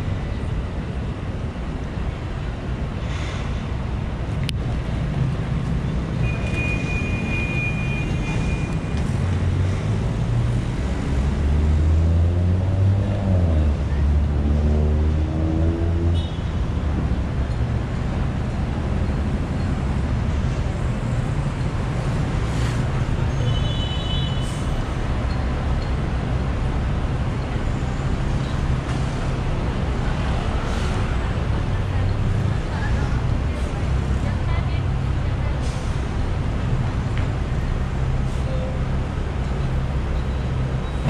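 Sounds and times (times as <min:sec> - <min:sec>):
traffic rumble: 0:00.0 - 0:41.0
loud vehicle engine: 0:08.0 - 0:23.4, 0:24.4 - 0:41.0.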